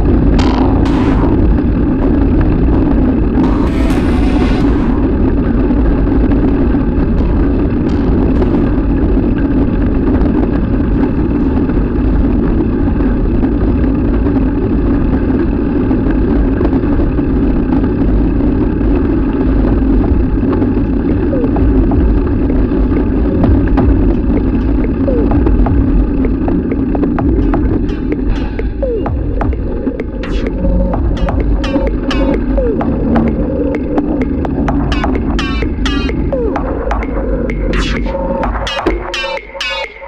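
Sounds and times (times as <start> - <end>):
wind rumbling on microphone: 0.0 - 39.1
bike tyres rolling over paving: 4.8 - 28.4.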